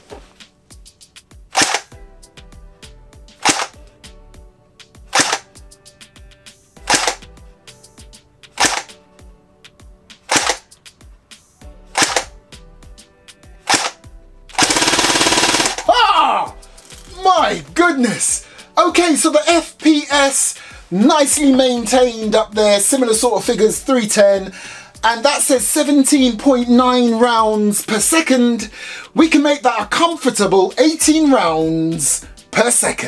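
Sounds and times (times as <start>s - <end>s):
airsoft gun single shots: 1.5s - 2.0s, 3.4s - 3.8s, 5.1s - 5.5s, 6.8s - 7.3s, 8.6s - 9.0s, 10.3s - 10.7s, 12.0s - 12.4s, 13.7s - 14.0s, 14.6s - 15.9s
airsoft gun full-auto burst: 1.6s - 1.9s, 3.4s - 3.8s, 5.1s - 5.5s, 6.9s - 7.2s, 8.6s - 8.9s, 10.3s - 10.6s, 12.0s - 12.3s, 13.7s - 14.0s, 14.6s - 15.9s.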